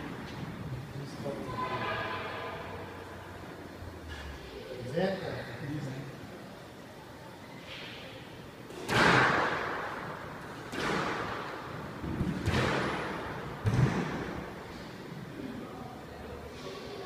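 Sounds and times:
squash ball hits echoing: 0:08.7 - 0:14.7.

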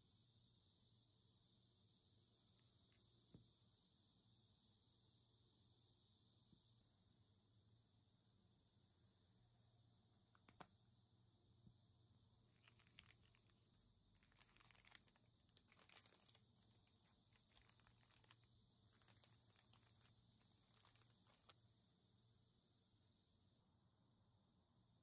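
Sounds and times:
plastic bags crinkling: 0:12.6 - 0:13.5, 0:14.2 - 0:21.5.

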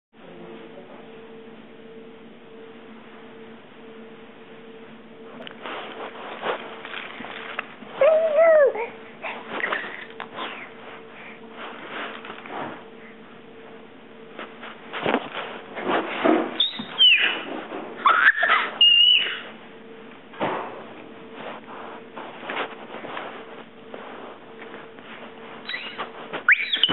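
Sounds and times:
baby squealing: 0:16.6 - 0:17.4, 0:18.0 - 0:19.4, 0:25.7 - 0:26.9.

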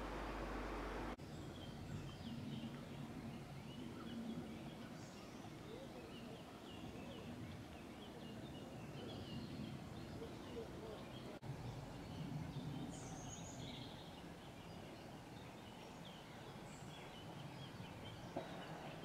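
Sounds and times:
steady hiss: 0:00.0 - 0:01.2
small birds chirping: 0:00.0 - 0:19.0.

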